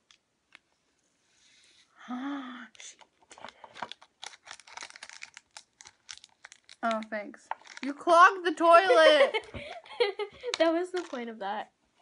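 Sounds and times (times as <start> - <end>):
plastic packet crinkling: 2.8 - 8.5, 10.5 - 11.4.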